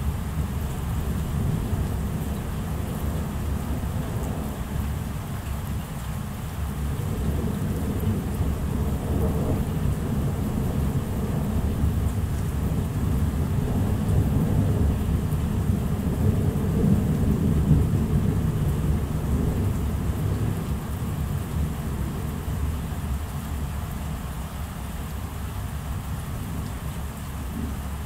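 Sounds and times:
rain falling: 0:00.0 - 0:28.0
thunder rumbling: 0:06.9 - 0:23.1.

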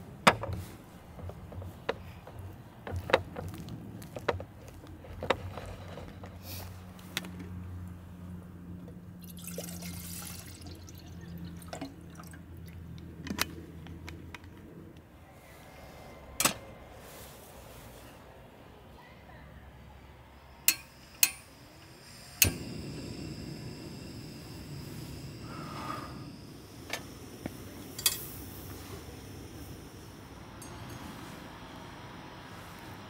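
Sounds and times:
low steady hum: 0:00.0 - 0:33.0
water poured from bottle: 0:09.2 - 0:12.8.

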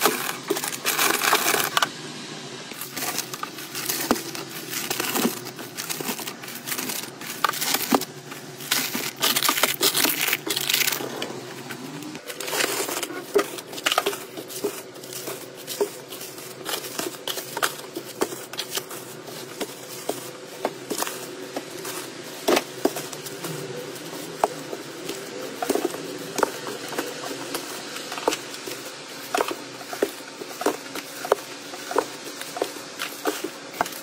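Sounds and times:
plastic packs crinkling: 0:00.0 - 0:01.9, 0:02.7 - 0:34.0
packs tapping on wooden shelf: 0:02.8 - 0:08.1.

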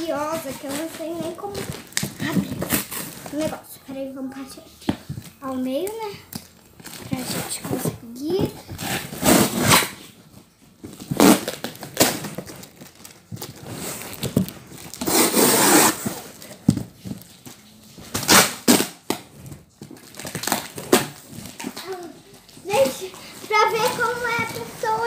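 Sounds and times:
cardboard tearing: 0:00.0 - 0:03.6, 0:08.8 - 0:10.0, 0:10.9 - 0:16.5, 0:18.1 - 0:22.1.

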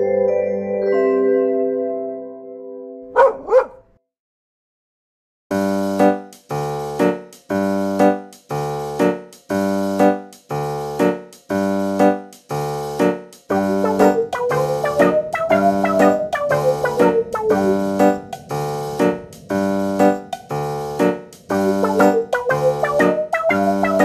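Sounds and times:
keyboard background music: 0:00.0 - 0:03.8, 0:05.5 - 0:24.0
dog barks: 0:03.1 - 0:03.9.

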